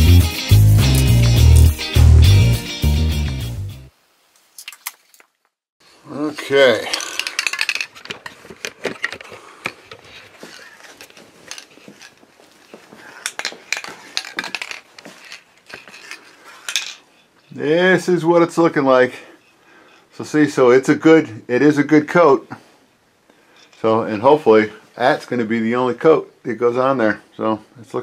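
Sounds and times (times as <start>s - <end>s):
background music: 0.0s - 3.9s
hard objects clinking and rattling: 6.4s - 17.4s.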